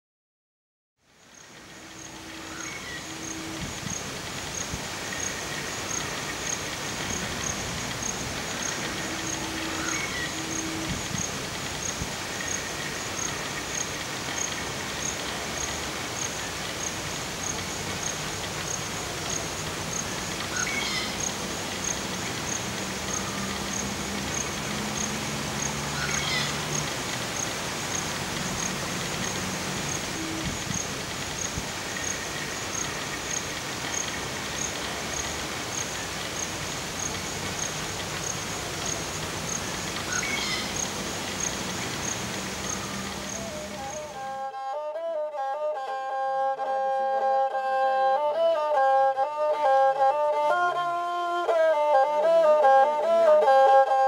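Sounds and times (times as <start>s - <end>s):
insect chirping: 1.0s - 44.3s
constant hiss: 1.0s - 44.6s
short bird-like calls: 1.8s - 15.2s, 19.2s - 36.5s, 38.8s - 44.2s.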